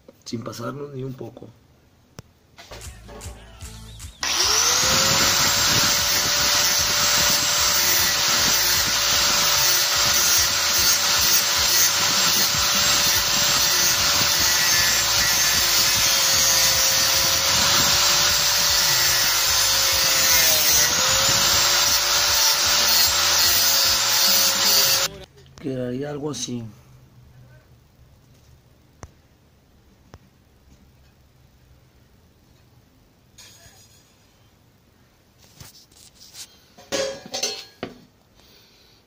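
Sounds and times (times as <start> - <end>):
angle grinder cutting metal: 4.2 - 25.2.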